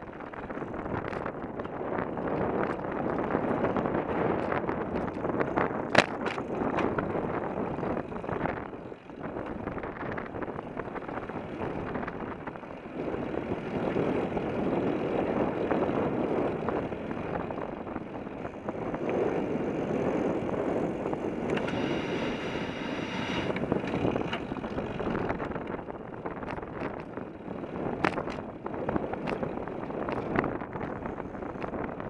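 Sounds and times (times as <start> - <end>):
tyre rolling on asphalt: 0.0 - 32.0
wind buffeting microphone: 0.0 - 32.0.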